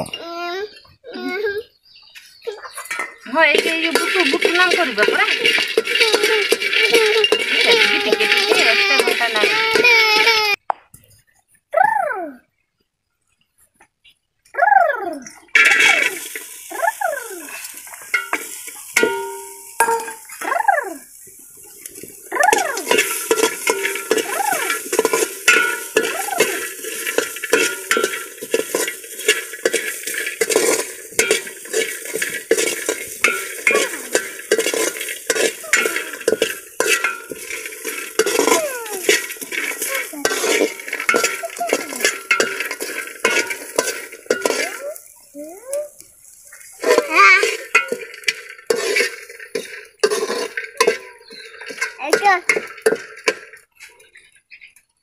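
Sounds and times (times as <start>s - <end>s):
food sizzling in a pot: 2.8s - 10.6s, 14.7s - 54.0s
metal spatula scraping a pot: 2.8s - 10.6s, 15.5s - 45.3s, 45.9s - 54.4s.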